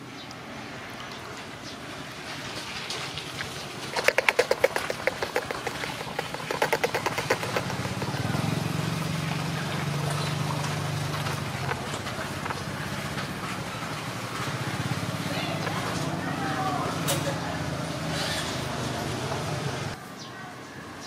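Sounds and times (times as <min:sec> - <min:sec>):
small engine running: 0:03.8 - 0:20.0.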